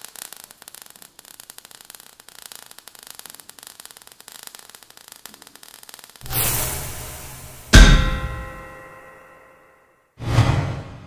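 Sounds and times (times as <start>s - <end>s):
sparks hissing and crackling: 0.0s - 8.8s.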